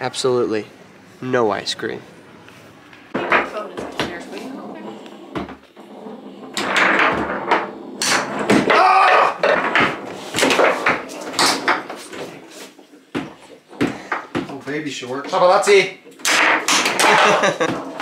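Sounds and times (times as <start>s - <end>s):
foosball ball and rods clacking: 3.1s - 14.6s, 16.0s - 18.0s.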